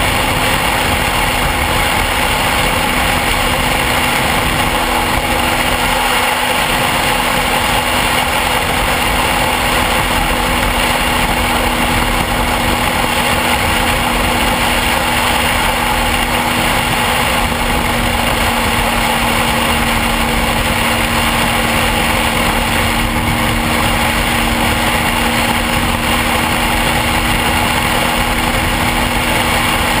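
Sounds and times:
loud rushing noise: 0:00.0 - 0:30.0
motorcycle engine running: 0:00.0 - 0:30.0.

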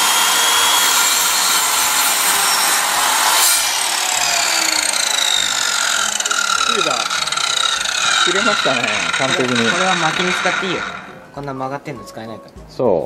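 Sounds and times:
miter saw cutting wood: 0:00.0 - 0:11.4
saw motor whine spinning down: 0:00.0 - 0:11.6.

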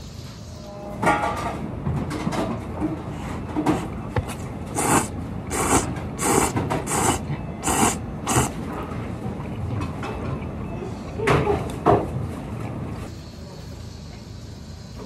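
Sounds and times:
person slurping noodles: 0:04.3 - 0:08.6.

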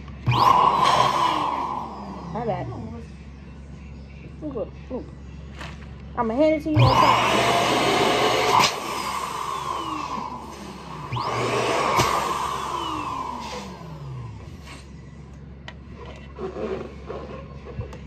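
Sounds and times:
electric balloon pump whirring: 0:00.0 - 0:03.0, 0:06.7 - 0:14.9.

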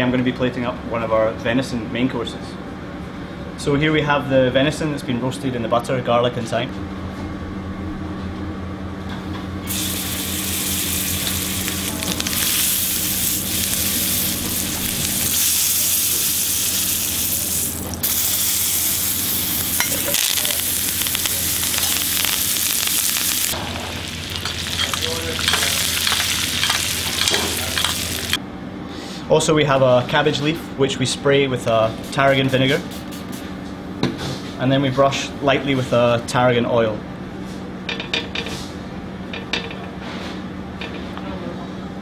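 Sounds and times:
meat sizzling in butter: 0:09.7 - 0:28.4.

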